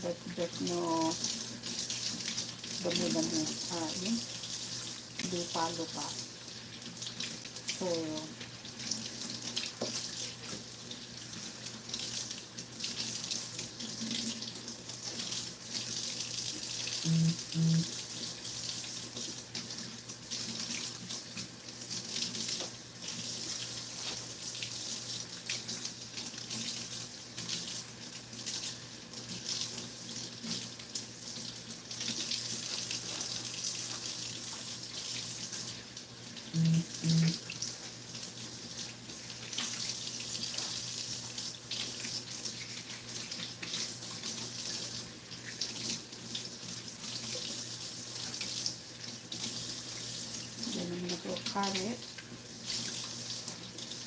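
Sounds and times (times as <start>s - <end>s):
faucet running into sink: 0.0s - 54.0s
short low tones: 36.6s - 37.4s.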